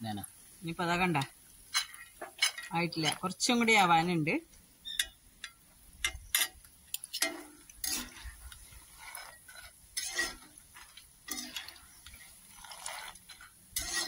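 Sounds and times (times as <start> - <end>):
oil sizzling with pops: 0.0 - 14.0
metal skimmer scraping in oil: 7.1 - 14.0.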